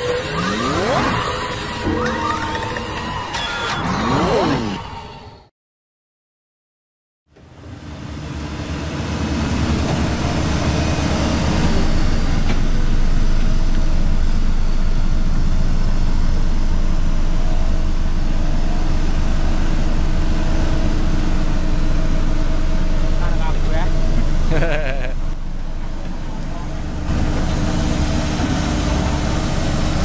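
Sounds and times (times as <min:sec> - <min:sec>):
diesel engine rumbling: 0:07.3 - 0:30.0.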